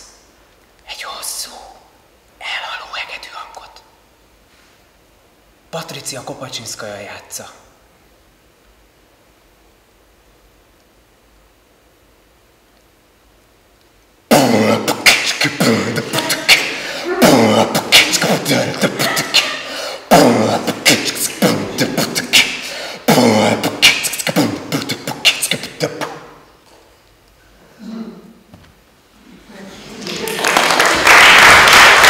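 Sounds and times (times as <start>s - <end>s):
man making harsh mouth noises: 14.3s - 26.5s.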